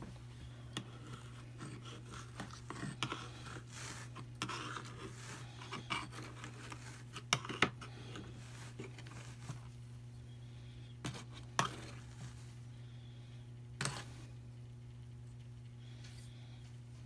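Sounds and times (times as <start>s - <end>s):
tool scratching on carding cloth: 0.8s - 9.6s.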